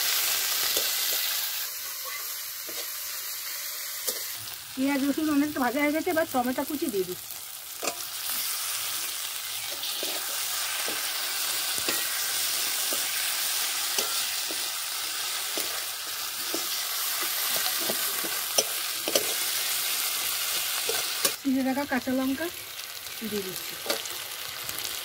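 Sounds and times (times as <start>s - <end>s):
tomatoes sizzling in hot oil: 0.0s - 25.0s
metal spatula scraping pan: 9.5s - 19.6s.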